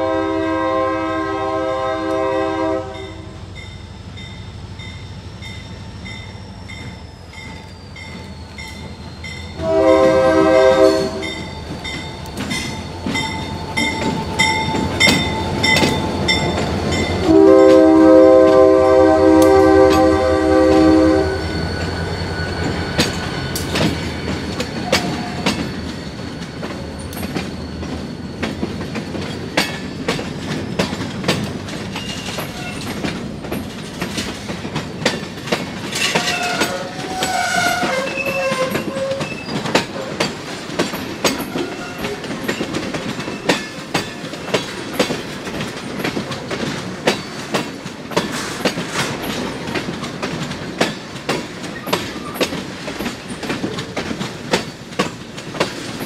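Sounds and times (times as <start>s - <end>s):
diesel locomotive engine hum: 0.0s - 56.0s
train wheels clicking over rail joints: 3.6s - 56.0s
high wheel squeals: 4.8s - 30.8s, 31.9s - 33.1s, 35.9s - 45.0s.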